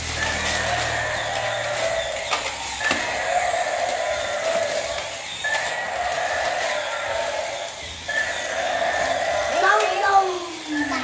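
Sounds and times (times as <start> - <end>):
toy motors whirring: 0.0 - 11.0.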